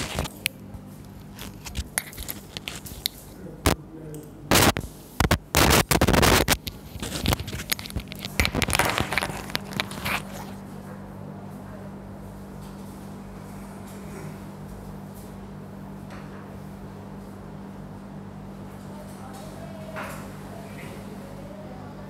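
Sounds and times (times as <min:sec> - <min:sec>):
scraping and rustling: 0:00.0 - 0:03.3, 0:04.5 - 0:10.8
low electrical hum: 0:00.0 - 0:22.0.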